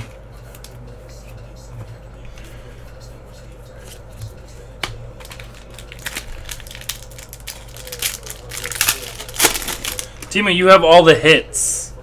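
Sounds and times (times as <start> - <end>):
plastic wrappers crinkling: 5.2 - 10.4.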